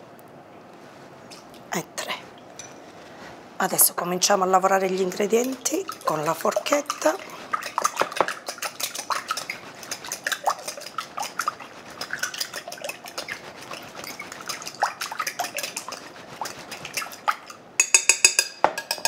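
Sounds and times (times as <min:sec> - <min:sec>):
fork beating eggs in glass bowl: 0:04.8 - 0:19.0.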